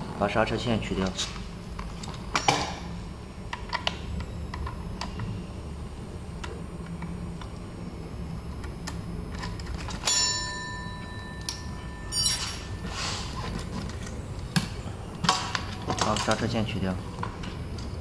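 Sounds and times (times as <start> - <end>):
metal part clanging: 11.4 - 14.1.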